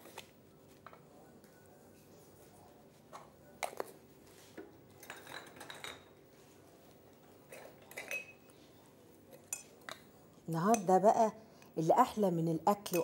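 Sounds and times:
clinks of kitchen things handled: 5.0s - 6.2s, 7.5s - 8.5s.

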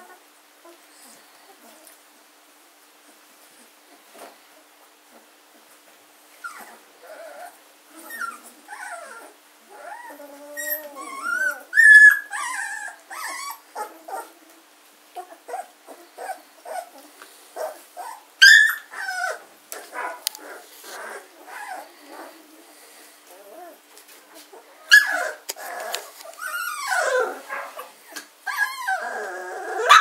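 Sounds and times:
puppies crying: 6.5s - 14.4s, 15.2s - 22.4s, 24.5s - 30.0s.

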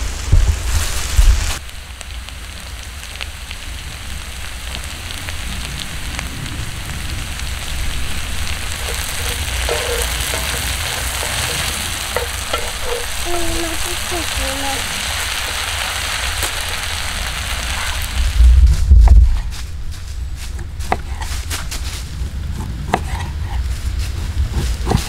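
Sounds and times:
potatoes sizzling in oil: 0.0s - 25.0s
wooden spatula stirring: 8.5s - 16.7s, 22.5s - 23.6s.

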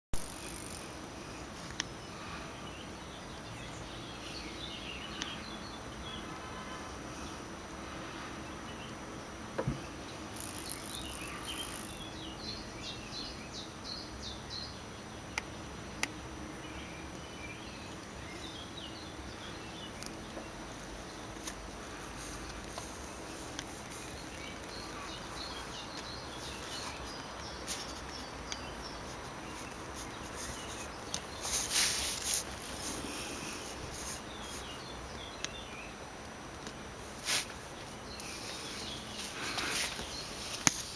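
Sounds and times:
steady hiss: 0.2s - 40.9s
short hiss burst: 37.2s - 37.5s.

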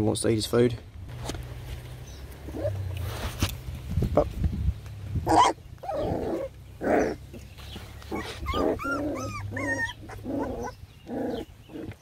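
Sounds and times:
puppies whining and yipping: 5.3s - 12.0s.

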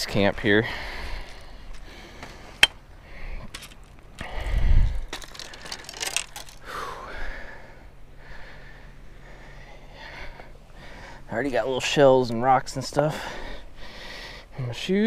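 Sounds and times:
footsteps crunching on gravel: 0.0s - 6.6s
fishing gear clicks: 5.0s - 6.7s.

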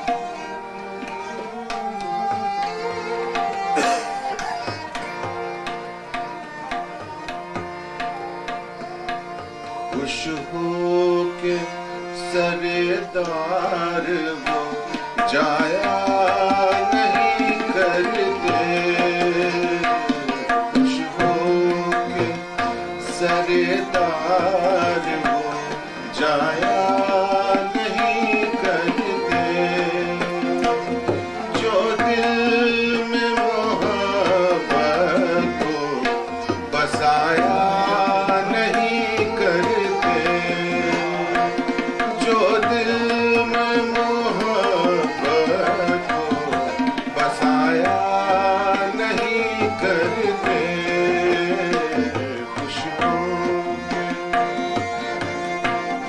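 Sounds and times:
harmonium notes: 0.0s - 56.0s
tabla rhythm: 0.0s - 56.0s.

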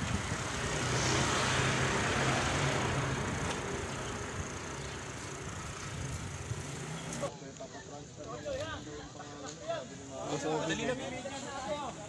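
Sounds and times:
road and wind noise: 0.0s - 7.3s
vehicle engine humming: 0.0s - 7.3s.

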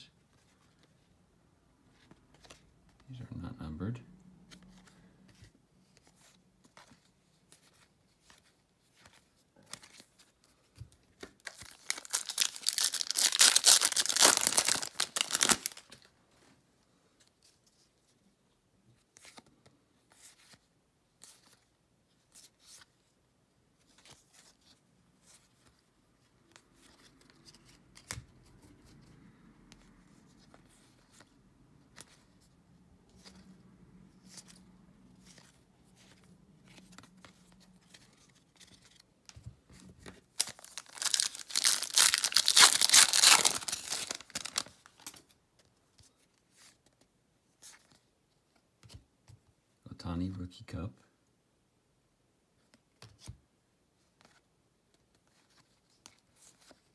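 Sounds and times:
cards being flipped: 2.0s - 3.0s, 26.5s - 28.4s, 35.2s - 47.0s
foil wrapper tearing and crinkling: 11.5s - 15.9s, 40.4s - 44.7s.

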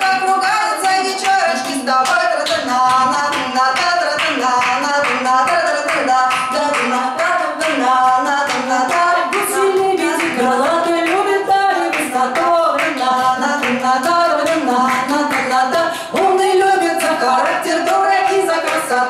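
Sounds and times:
hands clapping a beat: 0.0s - 19.0s
woman singing: 0.0s - 19.0s.

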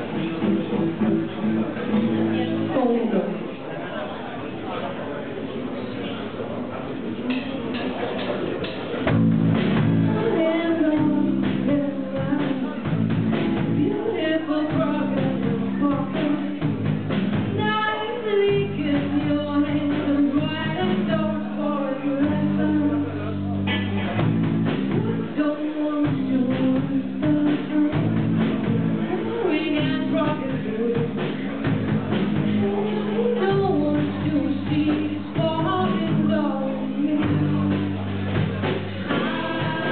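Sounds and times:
drum kit: 0.0s - 2.8s, 8.2s - 39.9s
electric guitar: 9.1s - 39.9s
woman singing: 9.8s - 16.9s, 17.5s - 24.2s, 24.9s - 31.5s, 32.4s - 37.8s, 39.0s - 39.9s
low keyboard or bass notes: 26.1s - 39.9s.

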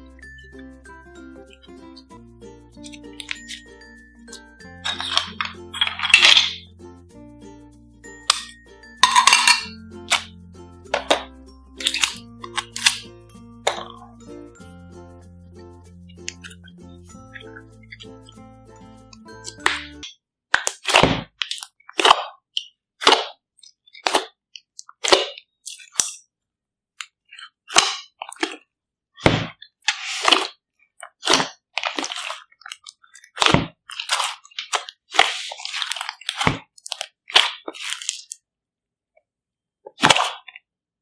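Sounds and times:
slime squelching and popping: 19.5s - 26.2s, 27.0s - 38.4s, 39.9s - 40.6s.

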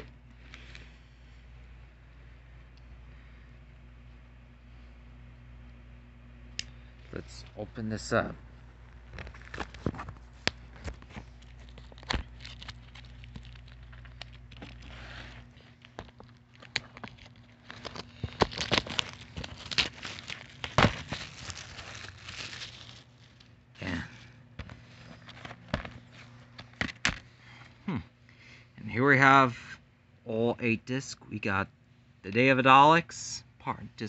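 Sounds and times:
plastic wrap crinkling: 8.9s - 24.0s.

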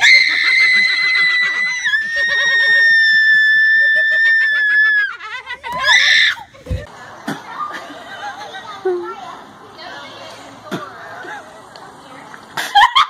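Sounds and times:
woman screaming: 0.0s - 6.5s.

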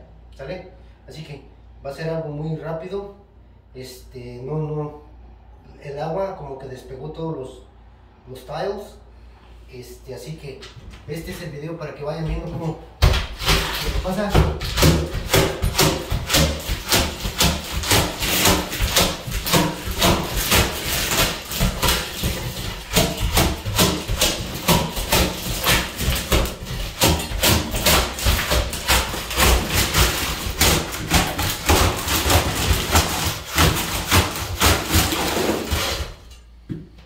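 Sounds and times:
floor scraper scraping tiles: 12.4s - 36.4s.

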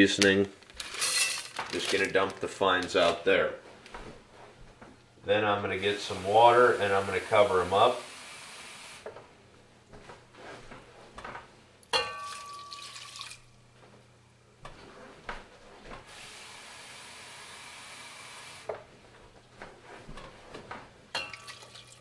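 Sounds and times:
tap water running into cup: 12.2s - 13.4s, 21.2s - 22.0s.

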